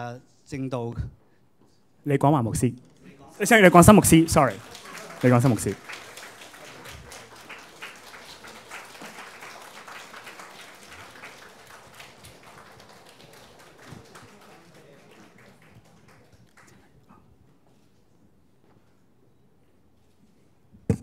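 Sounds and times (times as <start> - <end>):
small audience clapping: 3.4 - 17.3.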